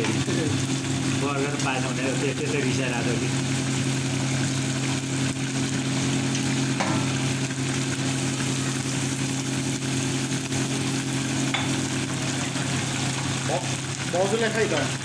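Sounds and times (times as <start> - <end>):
noodles bubbling and sizzling: 0.0 - 15.0
spatula knocking on wok: 6.8 - 7.2.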